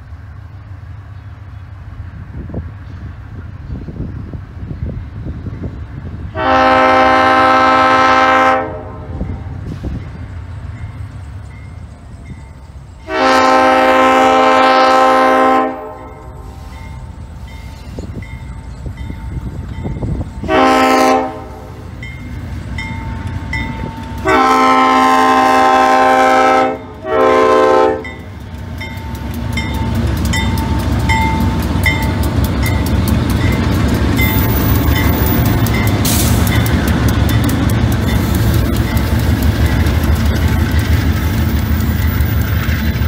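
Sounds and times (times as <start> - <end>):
locomotive rumble: 0.0 - 43.0
locomotive air horn blasts: 6.3 - 9.8, 13.0 - 16.8, 20.4 - 21.9, 24.2 - 28.3
crossing signal bell dinging: 16.0 - 21.0, 21.8 - 24.4, 27.9 - 41.0
wheels clicking over rails: 28.0 - 43.0.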